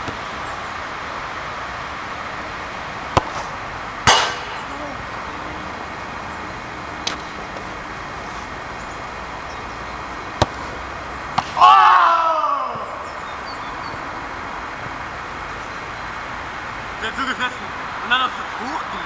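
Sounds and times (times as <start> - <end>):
football thuds on hard court: 3.1 - 4.6, 10.4 - 11.7
person shouting: 11.6 - 13.1.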